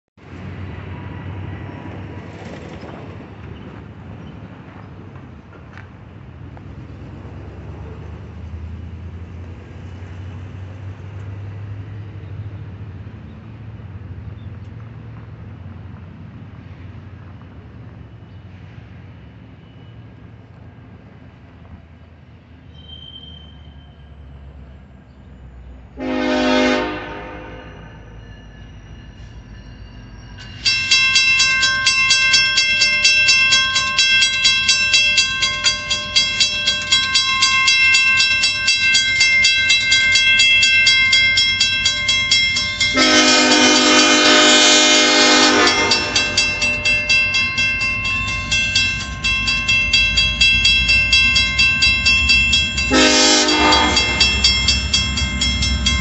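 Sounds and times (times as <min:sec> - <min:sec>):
diesel locomotive horn: 0:26.0 - 0:28.2, 0:41.6 - 0:47.5, 0:52.6 - 0:55.9
crossing bell ringing: 0:26.0 - 0:56.0.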